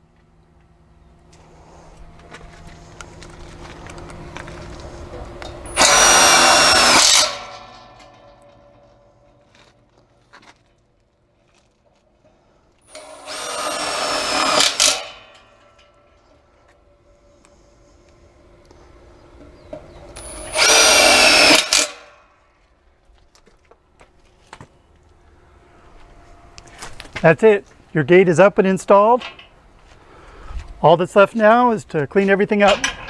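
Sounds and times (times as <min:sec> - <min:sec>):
cordless drill driving screws: 0:05.7 - 0:07.8, 0:12.9 - 0:15.4, 0:20.2 - 0:22.1.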